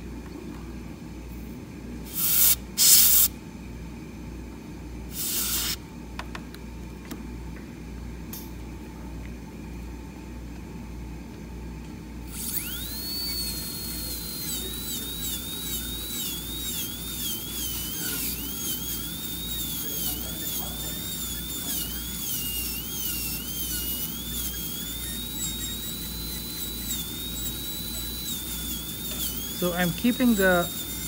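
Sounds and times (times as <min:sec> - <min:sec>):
dental drill whining: 0:02.1 - 0:03.3, 0:05.1 - 0:05.8, 0:12.3 - 0:31.0.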